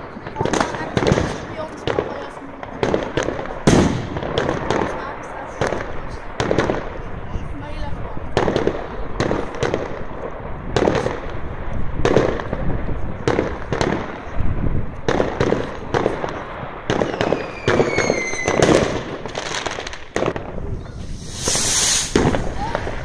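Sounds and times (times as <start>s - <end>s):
fireworks banging: 0.0s - 23.0s
whistling firework falling in pitch: 17.0s - 18.8s, 20.8s - 23.0s.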